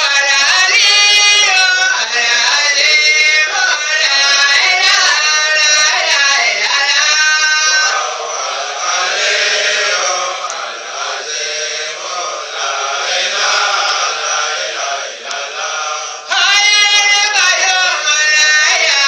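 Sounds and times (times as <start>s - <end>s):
man singing into microphone: 0.0s - 8.1s, 16.3s - 19.0s
group of voices singing: 0.0s - 19.0s.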